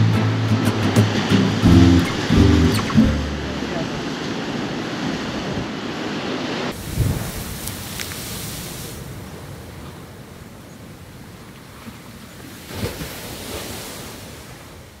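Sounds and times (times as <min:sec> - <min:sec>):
wave breaking: 0:00.0 - 0:09.2
surf washing on rocky shore: 0:00.0 - 0:15.0
wind on microphone: 0:05.0 - 0:09.2.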